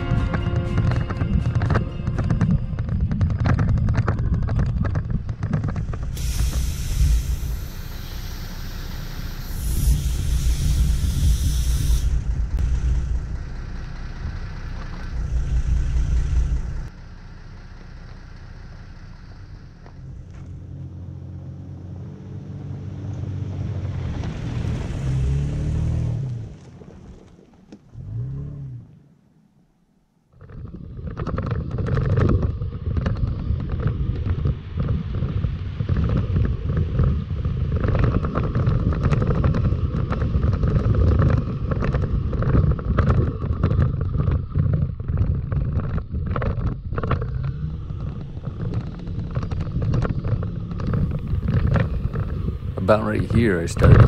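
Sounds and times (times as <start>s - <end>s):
wind buffeting microphone: 0.0s - 8.0s, 30.6s - 54.0s
tyres rumbling on gravel: 0.0s - 29.2s, 30.4s - 54.0s
air hissing from tyre valve: 6.1s - 12.4s
truck driving past: 6.2s - 27.1s.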